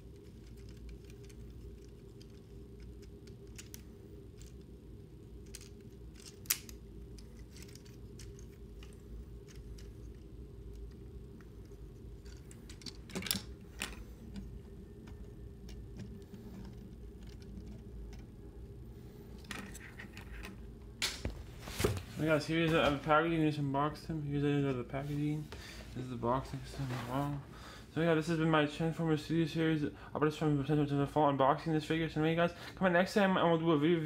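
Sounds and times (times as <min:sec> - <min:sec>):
low steady hum: 0:00.0 - 0:34.0.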